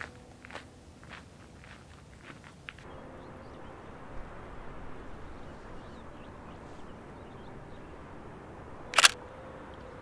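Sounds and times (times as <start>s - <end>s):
small birds chirping: 0.0s - 9.1s
steady low rush: 2.8s - 10.0s.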